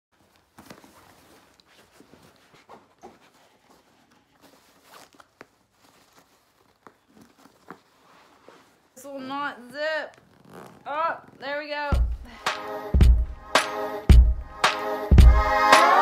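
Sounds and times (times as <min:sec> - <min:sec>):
backpack fabric rustling: 0:00.2 - 0:09.1, 0:10.1 - 0:11.4
tugs at a zipper: 0:10.0 - 0:12.0.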